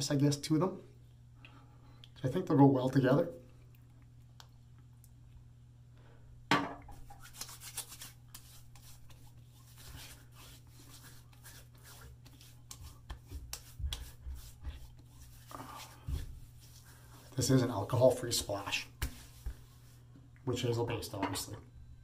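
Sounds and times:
hands rubbing and patting skin: 6.9 - 20.1.

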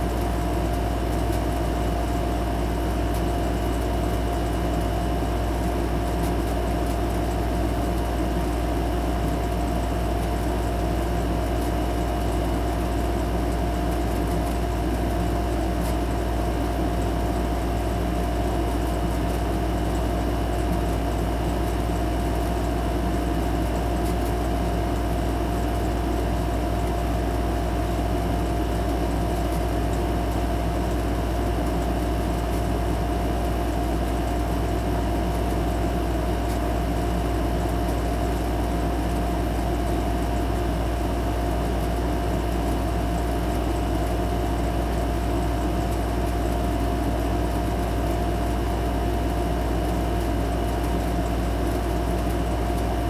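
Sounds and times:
machine hum with whine: 0.0 - 53.0.

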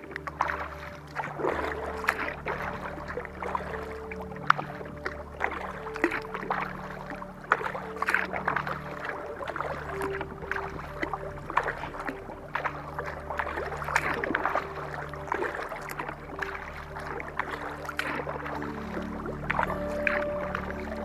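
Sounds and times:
paddle splashing in water: 0.0 - 21.0
soft background music: 0.0 - 21.0.

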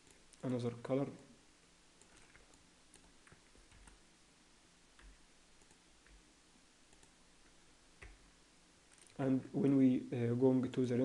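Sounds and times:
computer mouse and keyboard clicks: 2.0 - 4.0, 6.9 - 7.2.

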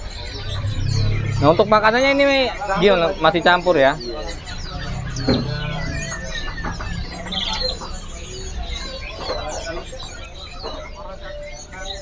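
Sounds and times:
steady low hum: 0.0 - 8.8
songbirds chirping and trilling: 0.0 - 12.0.

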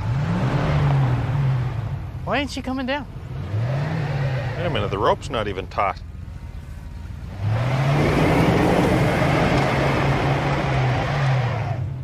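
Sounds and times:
pickup truck engine revving: 0.0 - 2.2, 3.2 - 5.5, 7.2 - 12.0.

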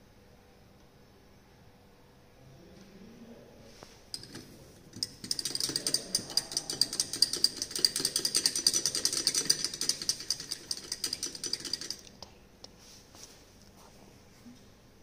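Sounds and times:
stirrer clinking against glass beaker: 4.1 - 12.2.

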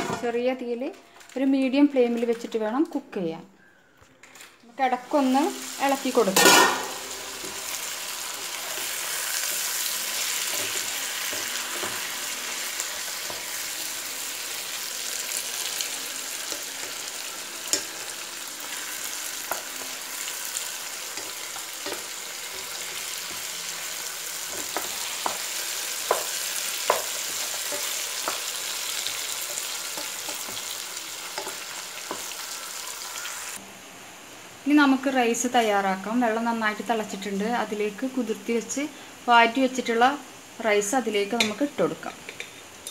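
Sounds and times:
chicken sizzling in oil: 5.0 - 33.6.

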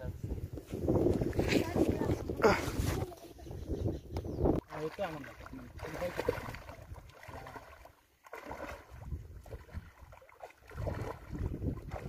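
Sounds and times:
water sloshing and splashing: 4.5 - 12.0.

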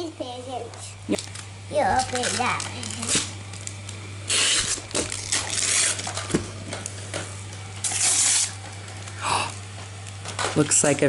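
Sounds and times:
wrapping paper tearing: 1.2 - 6.3, 7.8 - 8.6.

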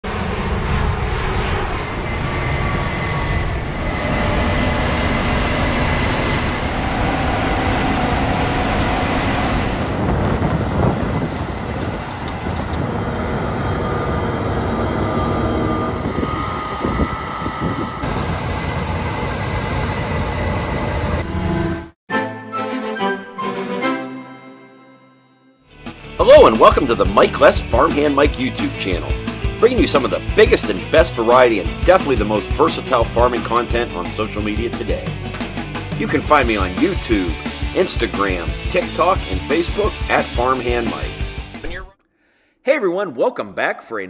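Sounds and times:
combine harvester running: 3.5 - 21.8.

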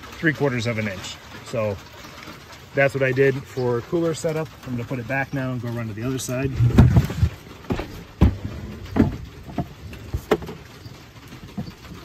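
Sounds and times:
cooler knocking and thumping: 4.0 - 12.0.

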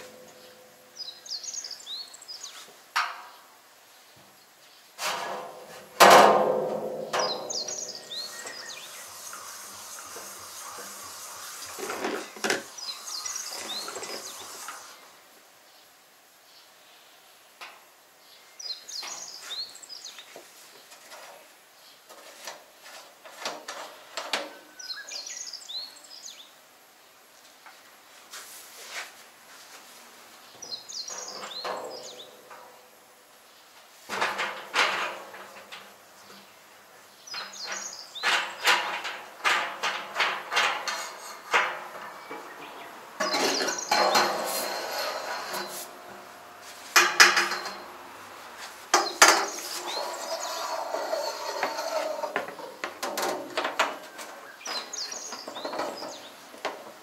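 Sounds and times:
birds chirping: 0.0 - 2.7, 7.2 - 17.2, 18.2 - 21.0, 24.5 - 26.6, 30.4 - 33.8, 36.2 - 39.4, 41.9 - 46.6, 48.9 - 56.6
hand pump clanking and rattling: 37.4 - 42.5, 43.2 - 45.9, 46.9 - 47.9.

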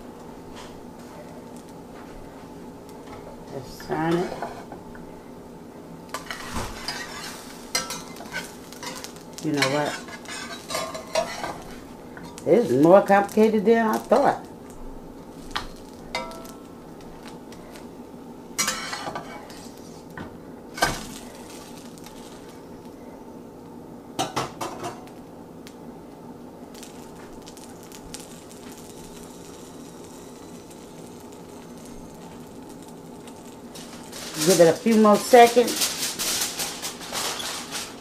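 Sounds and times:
food sizzling: 0.0 - 5.2, 5.9 - 38.0
metal spatula scraping a frying pan: 6.2 - 11.8, 18.6 - 19.6.

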